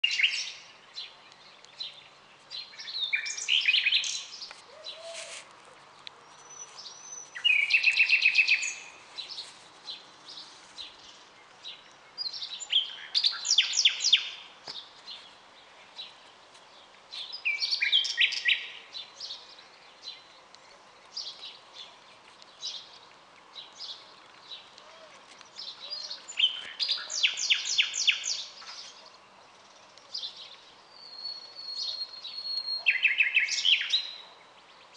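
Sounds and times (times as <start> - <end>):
nightingale singing: 0.0 - 14.9, 15.6 - 34.9
faint bird chirps: 23.9 - 34.9.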